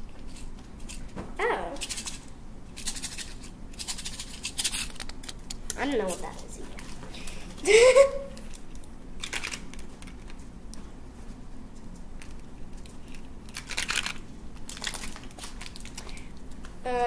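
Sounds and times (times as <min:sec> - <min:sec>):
candy wrappers crinkling: 0:01.8 - 0:10.4, 0:12.2 - 0:16.6.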